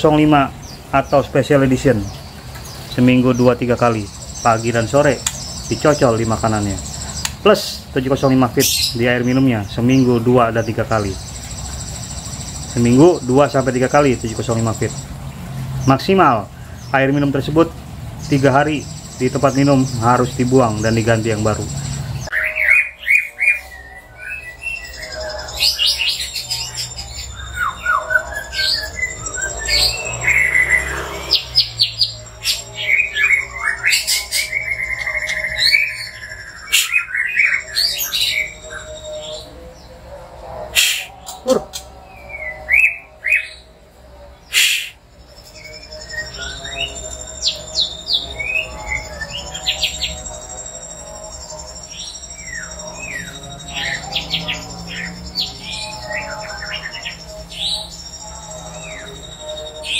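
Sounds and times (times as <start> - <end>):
harsh bird call: 0.0 - 15.1, 15.8 - 59.9
faint electronic music: 0.0 - 59.9
bird singing whistled phrases: 22.2 - 39.5, 40.8 - 43.6, 44.5 - 50.9
bird chirps and whistles: 33.3 - 39.4, 40.8 - 41.4, 44.5 - 45.0.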